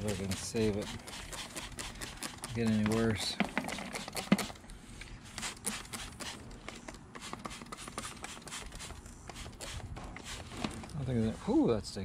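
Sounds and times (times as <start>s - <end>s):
spray bottle spritzes: 0.0s - 2.8s, 5.3s - 10.5s.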